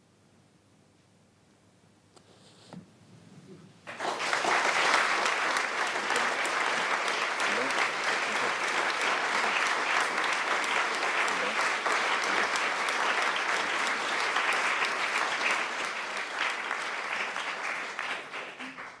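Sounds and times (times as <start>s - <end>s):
audience applauding: 3.8s - 19.0s.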